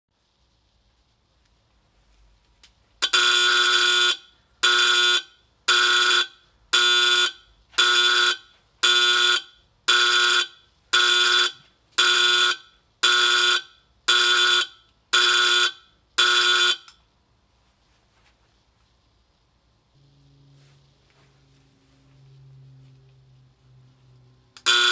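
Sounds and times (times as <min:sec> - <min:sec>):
buzzing alarm horn pulses: 0:03.0 - 0:17.0, 0:19.9 - 0:23.0, 0:24.6 - 0:24.9.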